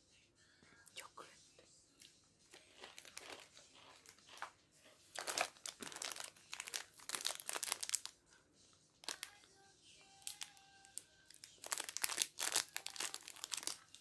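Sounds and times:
plastic wrapper crinkling: 2.5s - 4.5s, 5.1s - 8.2s, 9.0s - 9.4s, 10.2s - 14.0s.

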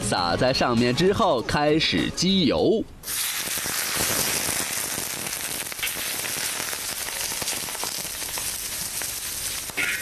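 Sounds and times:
hot oil sizzling: 3.0s - 10.0s.

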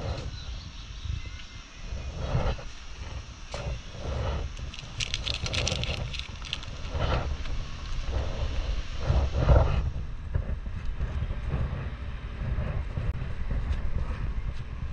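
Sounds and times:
wind noise on microphone: 0.0s - 14.9s
vehicle rumble: 1.9s - 14.9s
rattling clicks: 4.6s - 7.0s.

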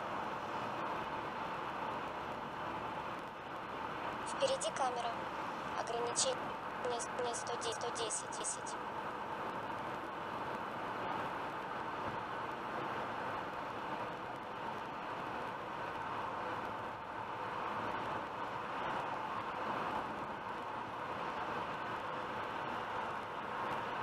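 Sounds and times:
road and tyre noise in car: 0.0s - 24.0s.

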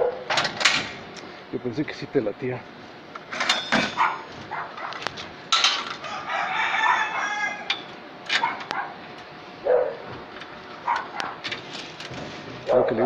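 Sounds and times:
rooster crowing: 6.0s - 7.9s.

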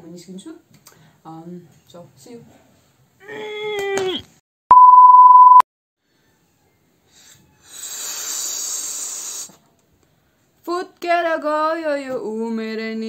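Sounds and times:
electronic censor beep: 4.7s - 5.6s
breath blown into balloon: 7.1s - 9.6s.

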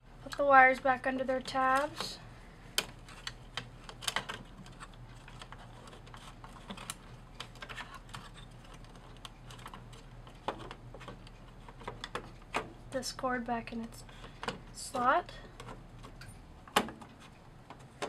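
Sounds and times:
clicks of plastic parts: 2.8s - 12.7s.

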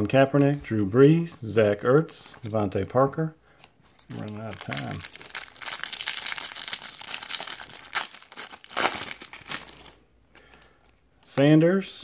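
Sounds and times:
foil wrapper crinkling and tearing: 3.9s - 10.8s.

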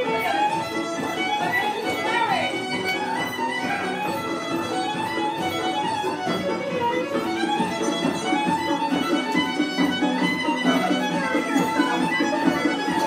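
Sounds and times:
fiddle playing dance tune: 0.0s - 13.0s.

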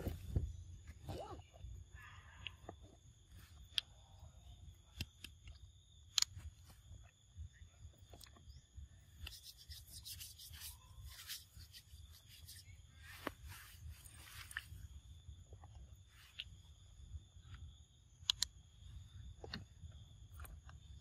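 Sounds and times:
sharp clicks of monkeys eating: 4.7s - 7.2s, 17.5s - 18.6s, 19.4s - 21.0s
crackly rustling: 9.1s - 16.6s.

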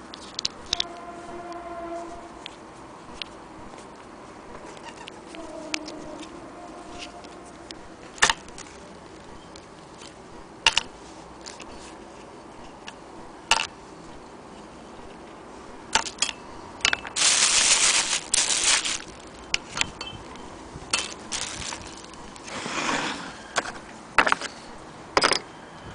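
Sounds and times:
plastic bag crinkling: 17.1s - 19.5s, 20.9s - 22.5s.

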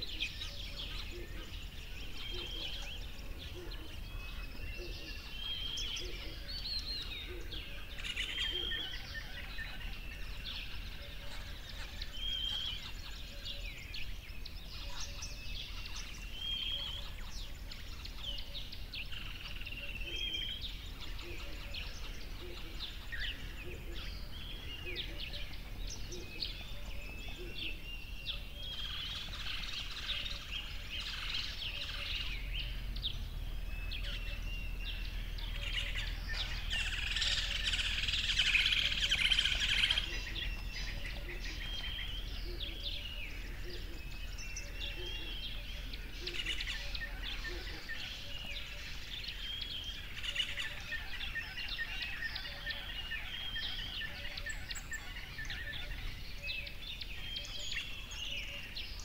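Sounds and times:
birds chirping: 0.0s - 59.0s
low rumble: 31.1s - 39.0s.

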